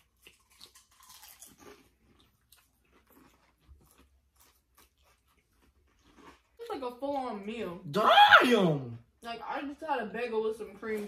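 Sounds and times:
close chewing crunches: 0.0s - 7.4s.

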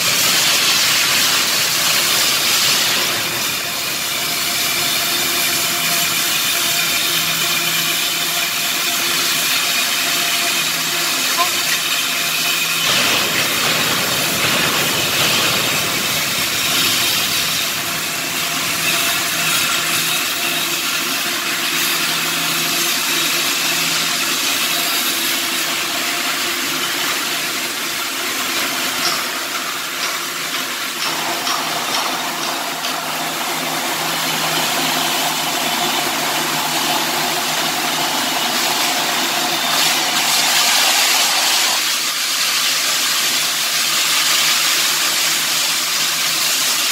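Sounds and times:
welding arc hissing and crackling: 0.0s - 46.9s
machine hum: 31.1s - 42.0s.

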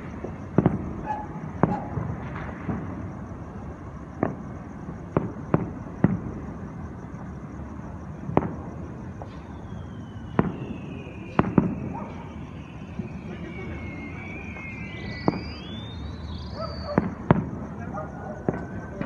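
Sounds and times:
distant fireworks booms: 0.0s - 19.0s.

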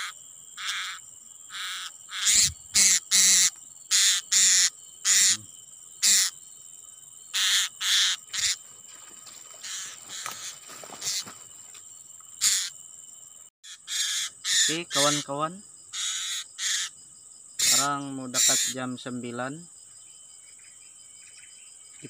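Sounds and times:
parrot shrill harsh calls: 0.0s - 5.4s, 6.0s - 6.3s, 7.3s - 8.6s, 9.6s - 10.5s, 12.4s - 12.7s, 13.6s - 15.3s, 15.9s - 16.9s, 17.6s - 18.8s
insects droning: 0.0s - 22.0s.

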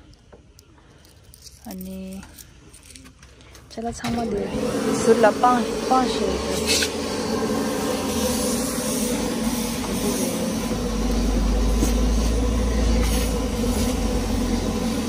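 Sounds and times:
deep low rumble: 4.3s - 15.0s
vehicle running hum: 4.6s - 15.0s.

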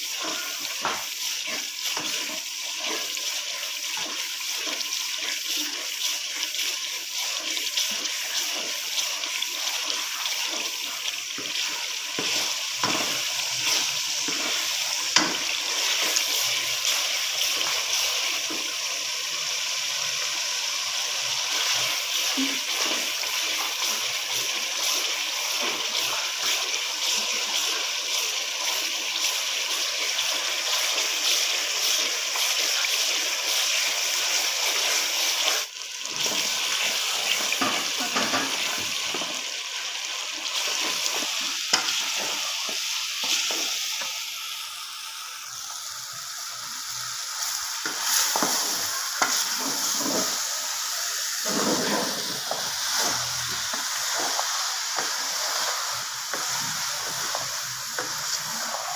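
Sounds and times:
wooden spoon stirring and scraping: 0.0s - 18.6s, 47.8s - 50.5s, 51.4s - 58.9s
food sizzling in oil: 0.0s - 58.9s.

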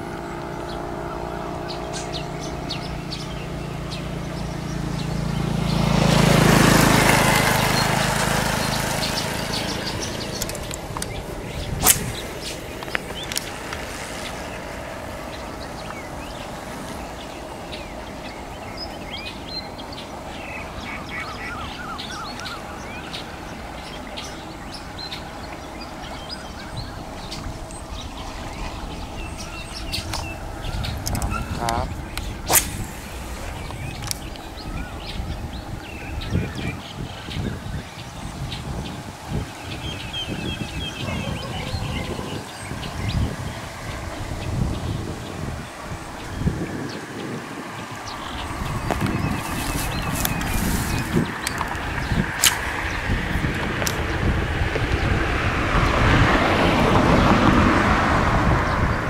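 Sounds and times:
birds chirping faintly: 0.0s - 59.0s
motor vehicle passing: 0.0s - 59.0s
sharp click: 52.4s - 52.7s.

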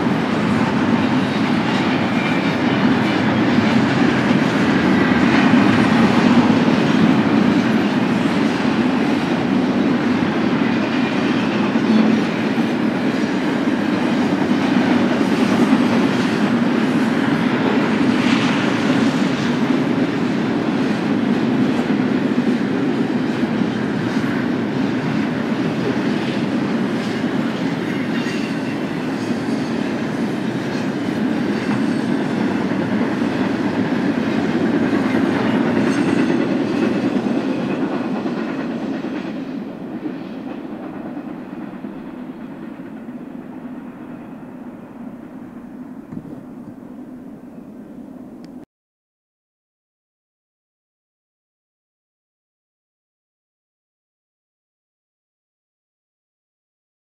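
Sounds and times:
train wheels clicking over rails: 0.0s - 47.3s.

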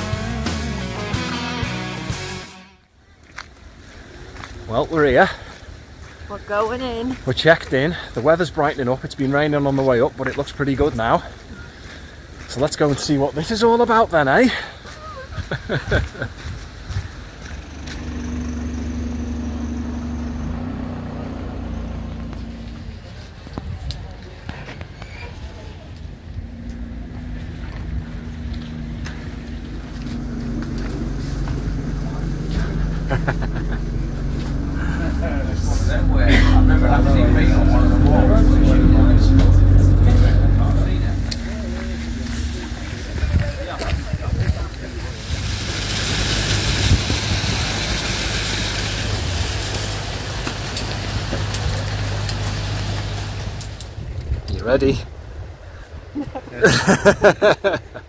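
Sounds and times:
bus engine idling: 13.4s - 54.1s
wind buffeting microphone: 26.1s - 45.8s, 46.4s - 48.0s, 53.5s - 56.6s.

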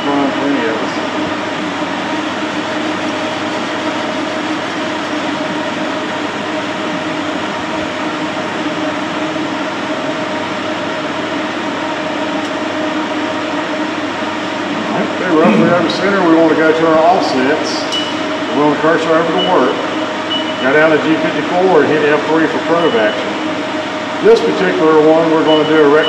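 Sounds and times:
machine hum and hiss: 0.0s - 26.0s
low drone: 14.6s - 17.2s.

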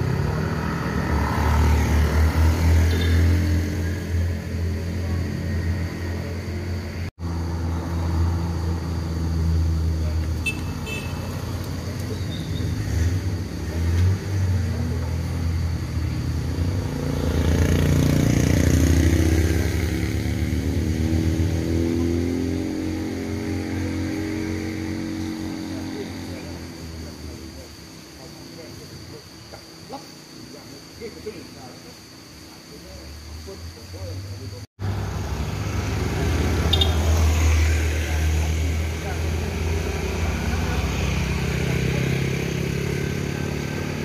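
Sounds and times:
car passing by: 0.0s - 10.4s, 34.8s - 44.0s.

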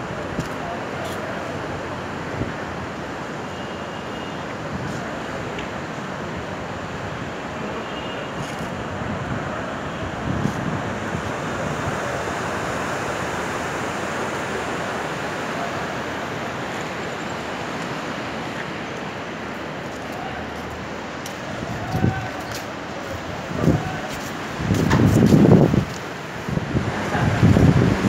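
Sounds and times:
river rushing over boulders: 0.0s - 3.5s, 4.4s - 28.0s.

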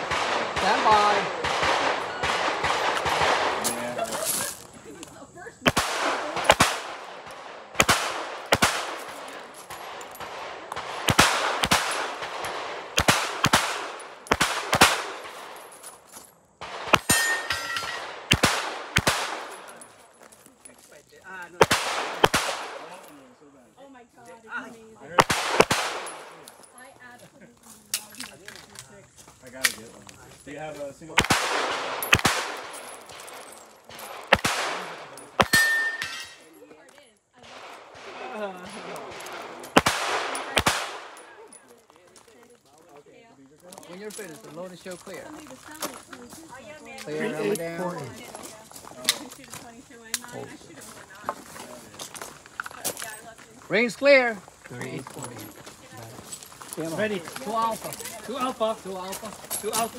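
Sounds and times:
pistol shots echoing: 0.0s - 4.0s, 5.6s - 15.8s, 16.6s - 19.9s, 21.6s - 23.1s, 25.2s - 26.7s, 31.1s - 36.4s, 37.4s - 41.5s.

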